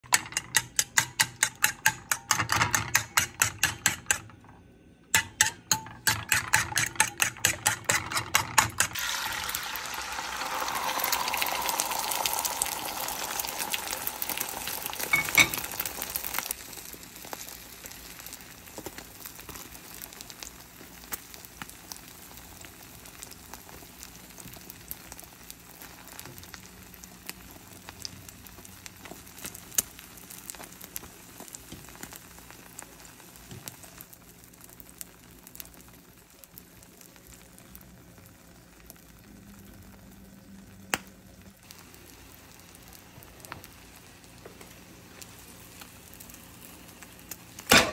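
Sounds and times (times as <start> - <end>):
egg sizzling in a frying pan: 0.0 - 47.9
fork beating eggs in a bowl: 0.1 - 4.4, 5.1 - 9.1.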